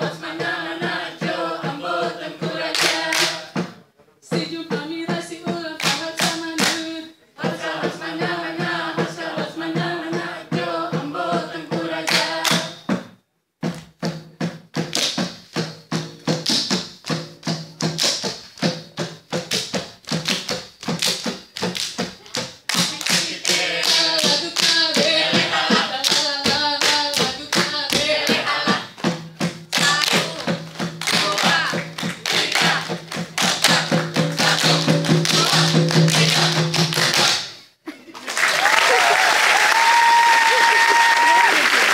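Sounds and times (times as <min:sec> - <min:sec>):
group chanting in unison: 0:00.0 - 0:03.6, 0:07.4 - 0:12.8, 0:23.1 - 0:26.4, 0:27.9 - 0:29.0, 0:29.8 - 0:37.5
hand claps and body slaps: 0:02.8 - 0:03.4, 0:05.8 - 0:06.8, 0:12.1 - 0:12.8, 0:14.8 - 0:15.4, 0:19.4 - 0:24.8, 0:29.7 - 0:37.5.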